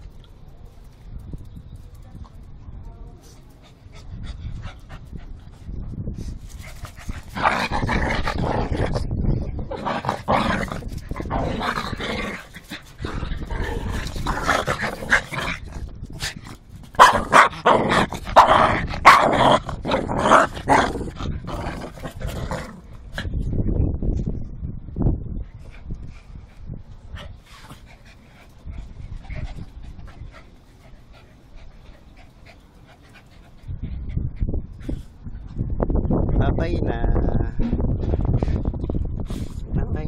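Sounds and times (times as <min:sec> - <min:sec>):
small dogs growling and barking: 0:06.7 - 0:15.9, 0:16.9 - 0:23.0.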